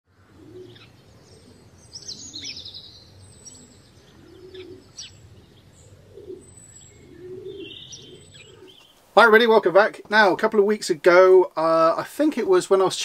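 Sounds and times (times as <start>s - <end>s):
small birds chirping: 0.1s - 9.2s
pigeon cooing: 0.2s - 2.8s, 3.4s - 8.8s.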